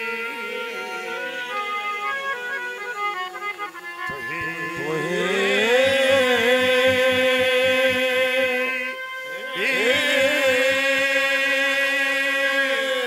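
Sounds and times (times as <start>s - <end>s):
harmonium drone: 0.0s - 13.0s
dholak beat: 4.1s - 8.8s, 9.7s - 11.5s
person singing long wavering note: 4.1s - 11.7s.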